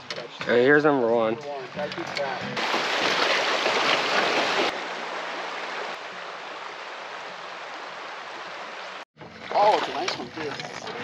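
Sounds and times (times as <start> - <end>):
river water rushing over riffle: 2.6 - 9.0.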